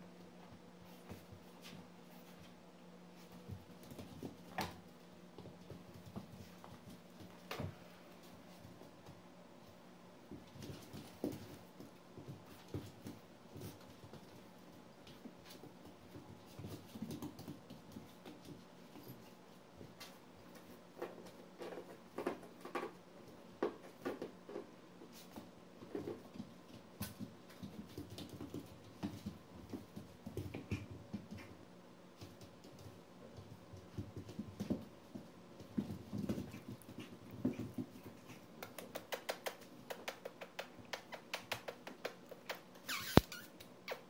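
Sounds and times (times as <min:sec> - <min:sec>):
puppies scuffling: 0:00.2 - 0:44.0
puppy noises: 0:30.2 - 0:31.8, 0:35.7 - 0:44.0.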